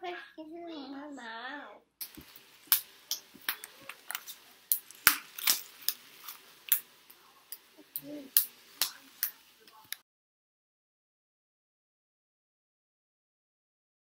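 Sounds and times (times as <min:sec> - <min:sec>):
children clapping hands: 0:07.9 - 0:10.0.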